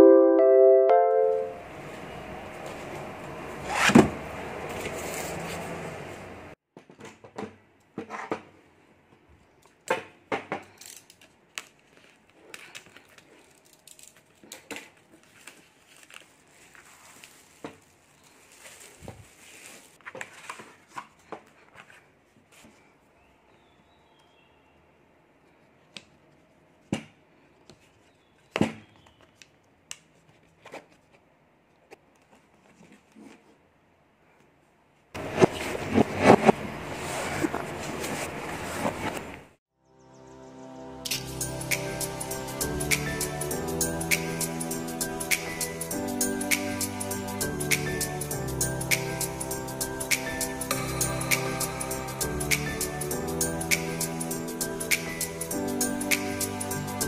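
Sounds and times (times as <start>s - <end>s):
music: 0.0s - 1.6s, 39.8s - 57.0s
plastic film crinkling and tearing: 10.7s - 20.0s.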